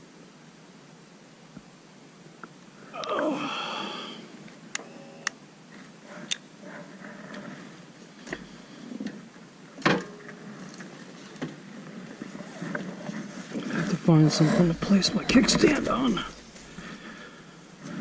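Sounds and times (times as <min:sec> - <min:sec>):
person groaning: 0:02.9 - 0:04.3.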